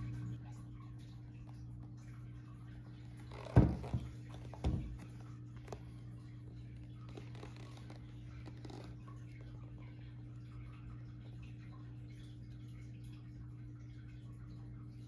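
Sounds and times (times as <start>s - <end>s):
steady low hum: 0.0s - 15.0s
shoes knocking on hard surface: 3.3s - 5.0s.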